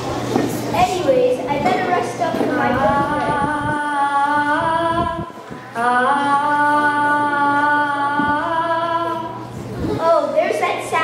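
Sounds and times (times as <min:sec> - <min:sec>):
person singing wordless notes: 0:02.6 - 0:09.5.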